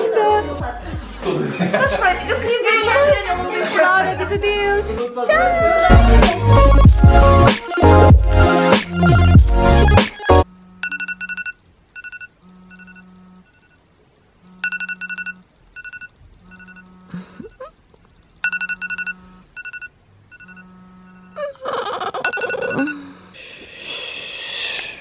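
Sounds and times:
phone alarm beeping: 10.6s - 13.8s, 14.4s - 17.1s, 18.4s - 21.4s, 22.2s - 23.4s.

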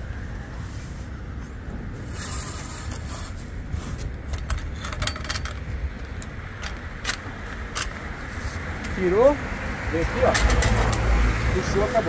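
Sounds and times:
steady low rumble: 0.0s - 12.0s
metal clicks and clinks of pole: 4.3s - 8.0s, 10.2s - 11.1s.

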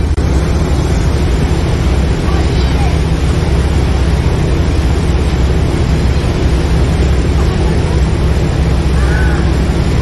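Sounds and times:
boat engine running: 0.0s - 10.0s
churning water wake: 0.0s - 10.0s.

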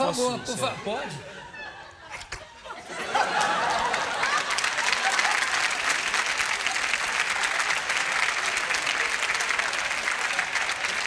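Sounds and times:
audience applauding: 3.2s - 11.0s.

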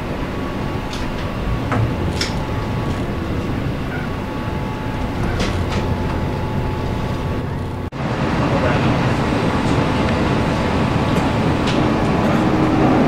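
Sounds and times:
train rumble: 0.0s - 13.0s
wheels clicking over track joints: 0.8s - 7.9s.

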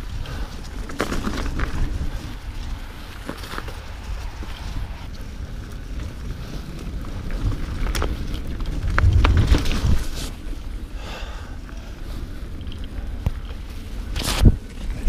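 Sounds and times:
bike tyres rattling over snow: 0.0s - 15.0s
wind on microphone: 0.0s - 15.0s
bike knocking over bumps: 7.4s - 10.3s.

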